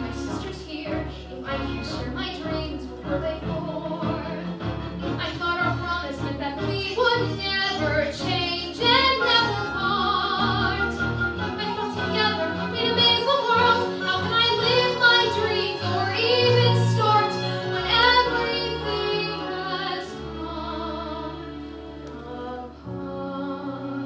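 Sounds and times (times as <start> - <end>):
backing accompaniment chords: 0.0 - 24.0
woman singing with vibrato: 5.2 - 21.4.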